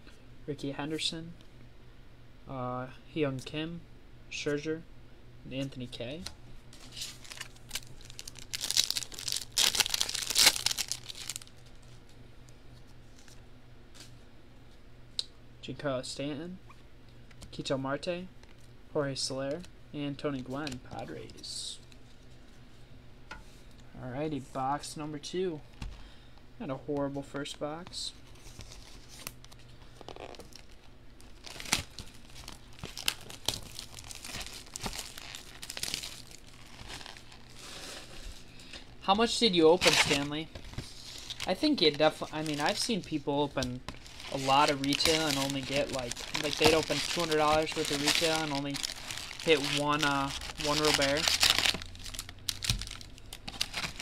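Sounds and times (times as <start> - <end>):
foil wrapper tearing and crinkling: 6.8 - 11.9, 28.5 - 38.1, 39.8 - 54.0
cardboard ripping: 39.8 - 40.3, 44.1 - 54.0.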